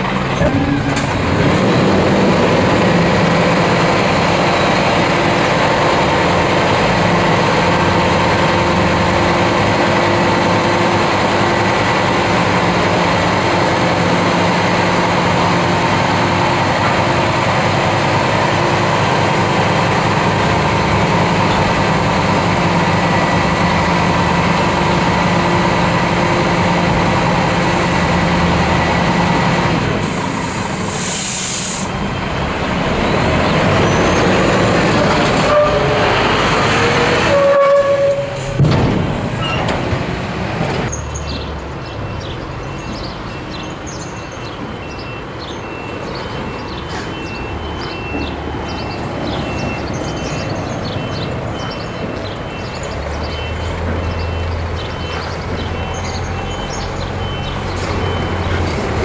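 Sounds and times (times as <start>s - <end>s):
truck diesel engine running: 0.0s - 40.9s
road noise: 0.0s - 59.0s
air hiss: 30.1s - 32.0s.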